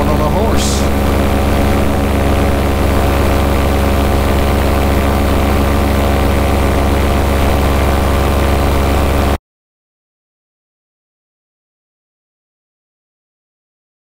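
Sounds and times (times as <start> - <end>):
paramotor engine droning: 0.0 - 9.4.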